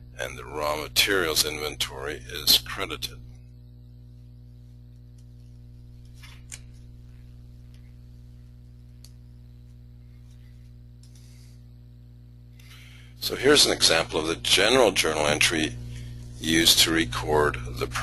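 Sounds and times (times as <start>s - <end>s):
low electrical hum: 0.0s - 18.0s
faint clicks: 8.9s - 9.8s.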